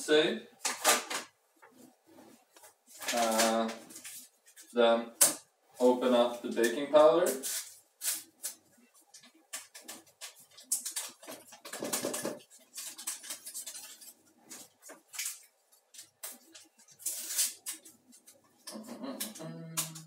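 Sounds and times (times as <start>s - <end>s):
paper sachet tearing and crinkling: 2.9s - 4.8s, 6.4s - 8.6s, 9.6s - 18.4s.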